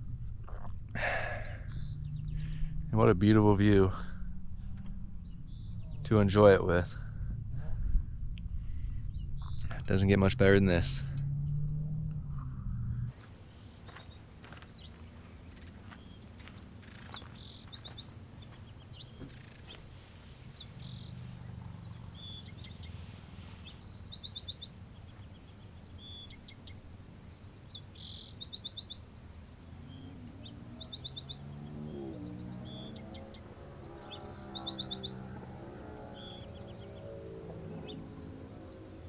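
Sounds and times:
low steady hum: 0:00.0 - 0:28.4
small birds chirping: 0:00.4 - 0:03.8, 0:04.6 - 0:06.6, 0:08.8 - 0:10.3, 0:13.1 - 0:39.0.

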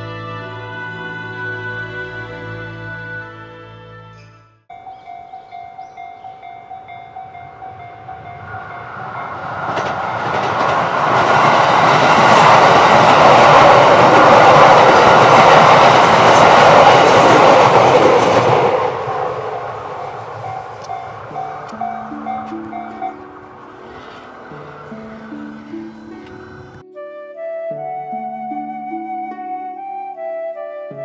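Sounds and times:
level-crossing bell dinging: 0:04.3 - 0:10.8, 0:18.8 - 0:26.8
electric train passing: 0:04.7 - 0:26.8.

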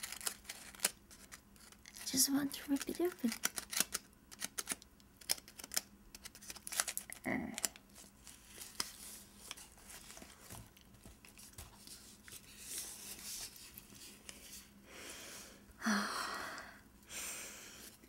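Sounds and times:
paper rustling: 0:07.9 - 0:14.7
breathy sound: 0:14.8 - 0:18.0.

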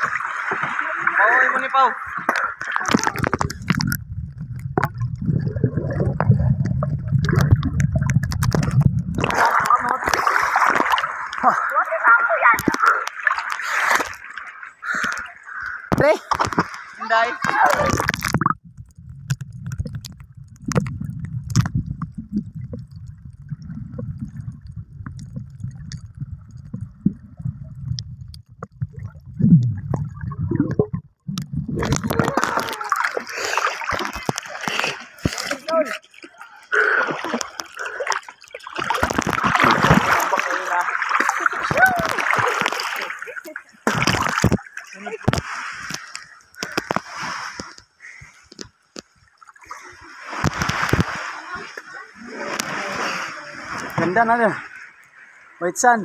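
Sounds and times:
water gurgling: 0:00.0 - 0:56.0
underwater water rumble: 0:02.0 - 0:11.4, 0:14.8 - 0:35.5
sharp underwater clicks: 0:02.2 - 0:11.8, 0:12.4 - 0:35.8, 0:37.1 - 0:49.5, 0:50.3 - 0:51.3.

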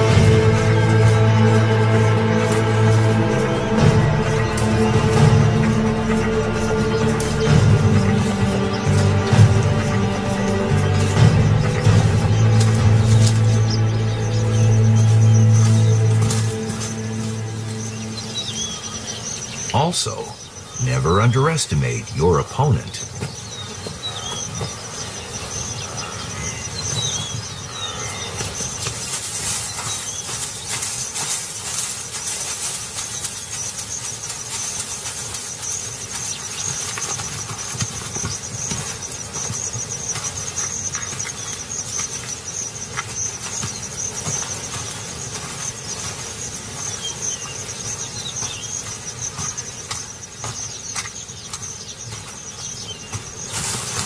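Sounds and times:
ostrich wings flapping: 0:00.0 - 0:19.6, 0:26.7 - 0:54.0
insects chirring: 0:00.0 - 0:54.0.

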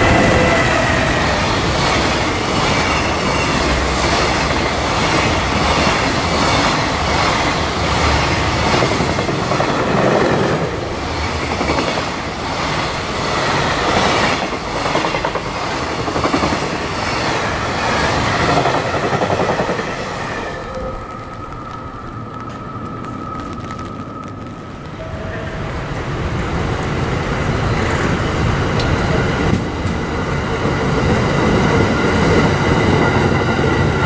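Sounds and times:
freight train rumbling past: 0:00.0 - 0:34.0.

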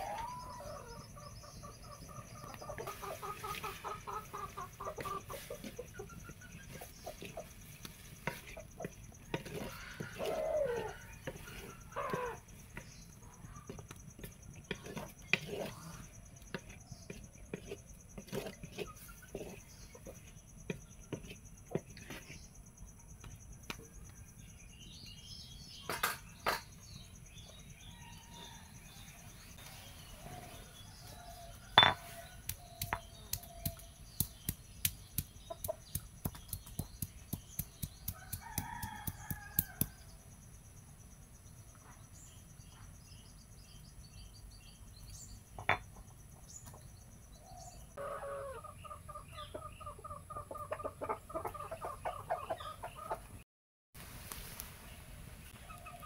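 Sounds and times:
chickens clucking: 0:00.0 - 0:12.4, 0:35.5 - 0:36.9, 0:48.0 - 0:53.4
small birds chirping: 0:00.0 - 0:40.0, 0:41.4 - 0:53.4
stone knocking on stone: 0:31.8 - 0:32.0.

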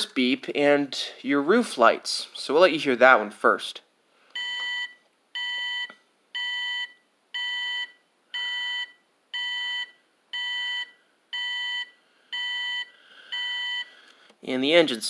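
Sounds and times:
toy truck reverse beeper: 0:04.4 - 0:13.9.

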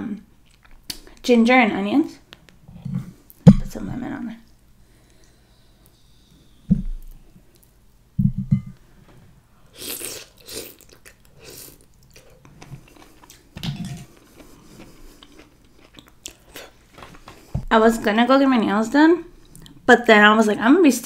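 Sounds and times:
dull handling thumps: 0:02.9 - 0:04.0, 0:08.2 - 0:08.7
wet slurping and chewing: 0:09.8 - 0:16.8.

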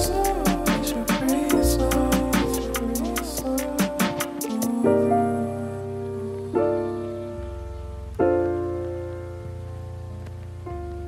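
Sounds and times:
instrumental music with beat: 0:00.0 - 0:04.8.

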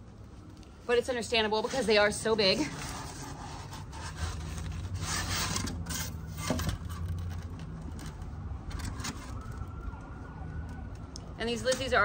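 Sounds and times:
plastic trays rubbing and scraping: 0:01.3 - 0:09.4.

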